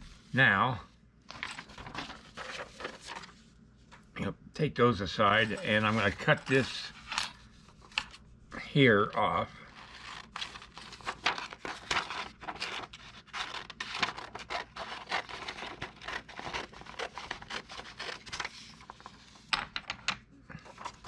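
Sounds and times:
paper crinkling: 1.3s - 3.5s, 5.3s - 8.2s, 9.6s - 19.4s
scissors snipping paper: 9.8s - 18.4s.

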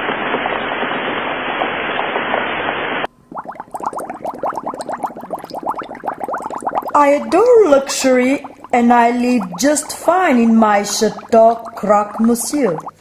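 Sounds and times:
water bubbling in a pot: 3.1s - 13.0s.

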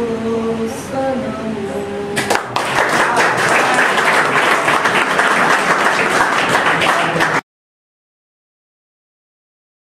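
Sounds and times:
crowd applauding: 2.2s - 7.4s.

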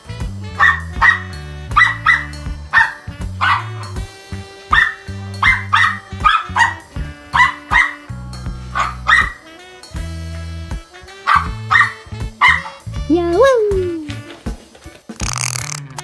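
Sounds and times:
background music with bass line: 0.0s - 16.0s
small dog barking: 0.6s - 3.9s, 4.7s - 8.1s, 8.7s - 9.4s, 11.2s - 12.8s.

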